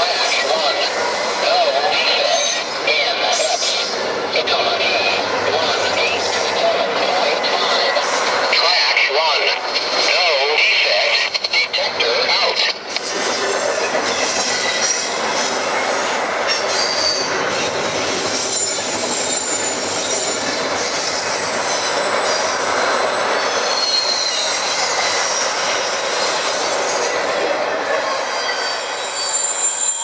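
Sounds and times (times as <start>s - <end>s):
rumble of train wheels on rail: 0.0s - 30.0s
high-pitched wheel squeals: 16.5s - 17.4s, 18.2s - 27.1s, 28.0s - 30.0s.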